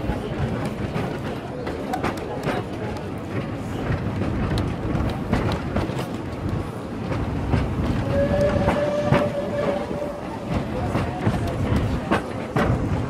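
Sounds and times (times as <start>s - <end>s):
train rumbling on track: 0.0s - 13.0s
wheels clicking over rail joints: 0.0s - 13.0s
steam locomotive whistle: 8.0s - 10.5s.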